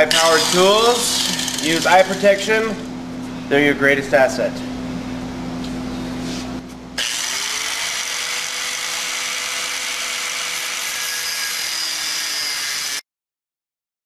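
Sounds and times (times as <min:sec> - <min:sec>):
angle grinder grinding metal: 0:00.0 - 0:02.3, 0:07.0 - 0:13.0.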